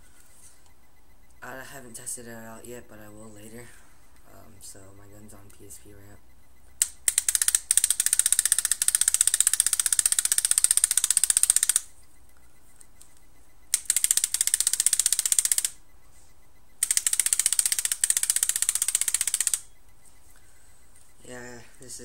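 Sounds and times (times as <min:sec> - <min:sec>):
paintball marker rapid clicks: 0:06.8 - 0:11.9, 0:12.8 - 0:15.8, 0:16.8 - 0:19.7.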